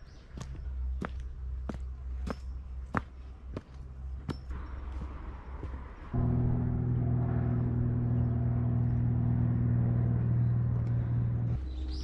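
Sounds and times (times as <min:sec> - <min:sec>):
steady low-pitched hum: 0:00.3 - 0:12.0.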